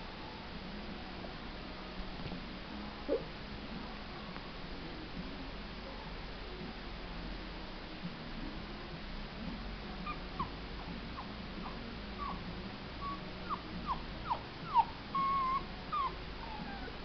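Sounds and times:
puppy whimpering and whining: 0:10.0 - 0:12.4, 0:13.0 - 0:17.0.

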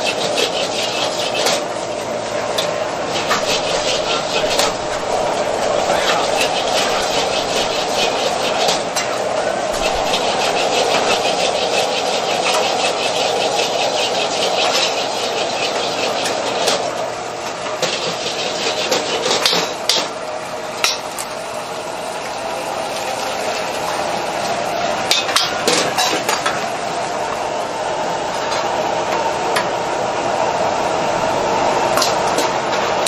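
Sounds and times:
metal ladle scraping wok: 0:03.1 - 0:16.8.

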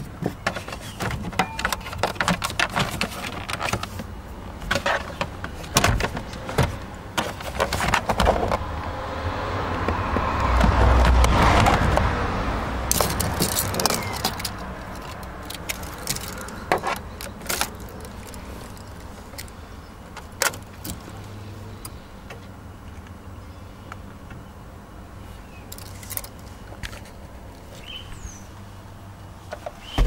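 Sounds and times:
low rumbling handling noise: 0:00.0 - 0:24.5
car keys jingling: 0:12.9 - 0:21.1, 0:25.7 - 0:27.2.

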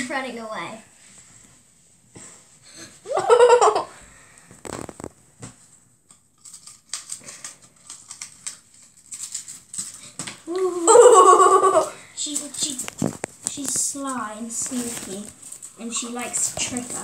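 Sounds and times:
child giggling: 0:03.0 - 0:03.9, 0:10.5 - 0:12.0
cardboard tube rustling: 0:04.5 - 0:05.7, 0:12.4 - 0:17.0.

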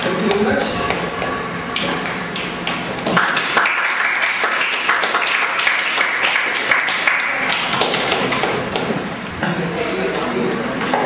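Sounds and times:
audience applauding: 0:02.4 - 0:08.9.

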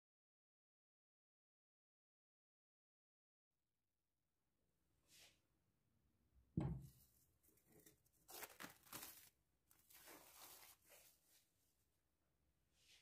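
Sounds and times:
cling film peeling and crinkling: 0:07.8 - 0:11.1.

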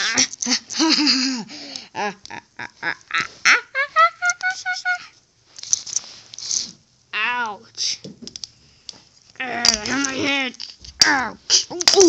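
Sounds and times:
person laughing: 0:00.0 - 0:05.2.

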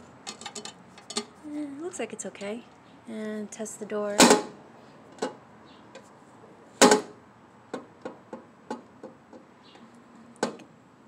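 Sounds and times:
fuel filler door clacking shut: 0:06.8 - 0:07.2.

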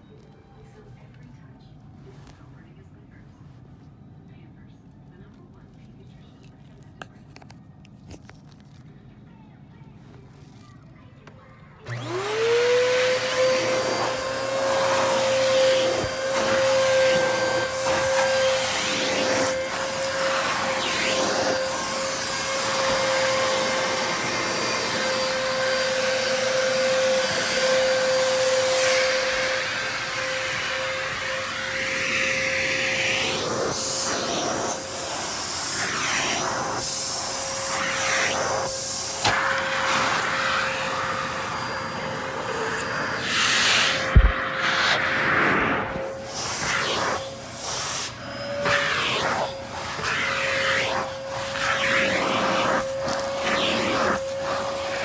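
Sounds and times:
vacuum cleaner motor whine: 0:11.8 - 0:55.0.

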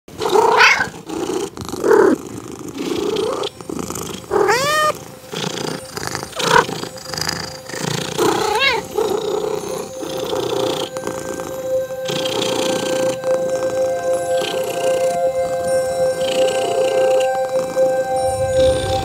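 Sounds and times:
cat meowing: 0:00.4 - 0:00.9, 0:04.3 - 0:05.0, 0:08.2 - 0:09.6.

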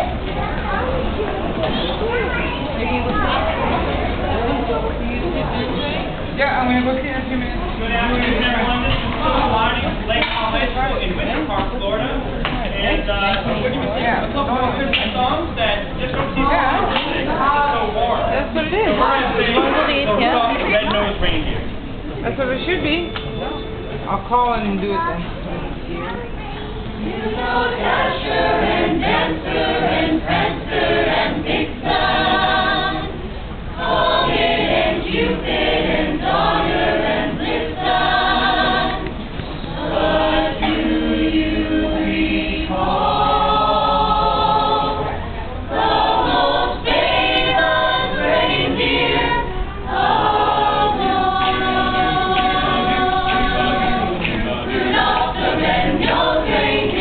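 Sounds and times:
mixed choir singing: 0:16.4 - 0:20.9, 0:26.9 - 0:57.0.

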